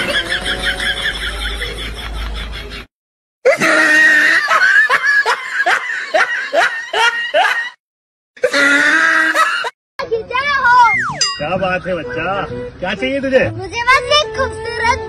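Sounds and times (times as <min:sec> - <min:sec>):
loud laughter: 0:00.0 - 0:02.9, 0:03.5 - 0:07.8, 0:08.4 - 0:09.8.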